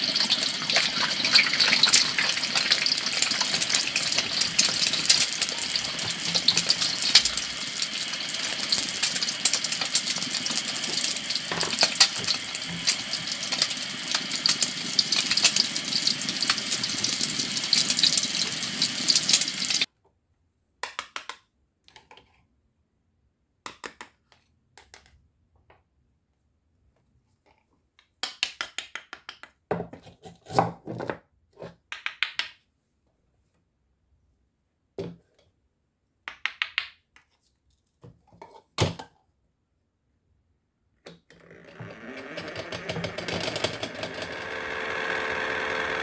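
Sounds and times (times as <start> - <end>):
frying pan sizzle: 0.0 - 19.9.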